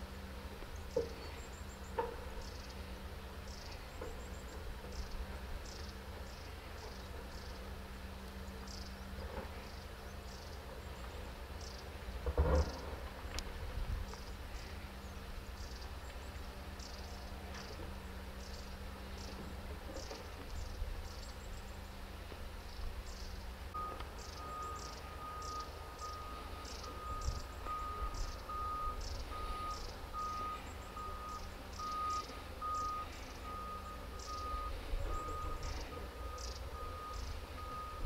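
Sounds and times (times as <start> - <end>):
low engine rumble: 0.0 - 38.0
backup alarm beeping: 23.8 - 38.0.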